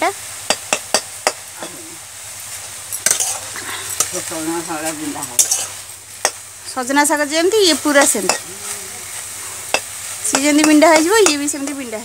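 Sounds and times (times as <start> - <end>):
greens sizzling in a pan: 0.0 - 12.0
metal spatula scraping pan: 3.0 - 4.0, 5.3 - 6.4.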